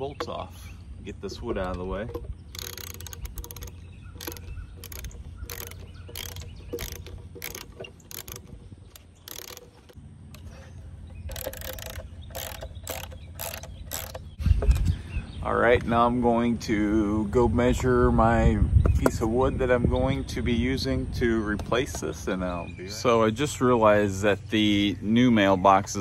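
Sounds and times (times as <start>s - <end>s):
ratcheting wrench clicking: 1.6s - 10.5s, 11.2s - 14.4s.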